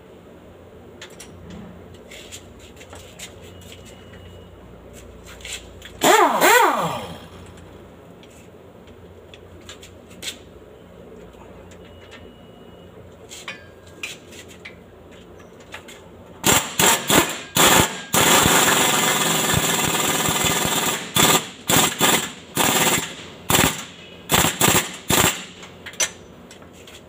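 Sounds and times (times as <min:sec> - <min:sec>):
pneumatic impact wrench hammering: 0:06.0 - 0:07.6, 0:16.4 - 0:26.3.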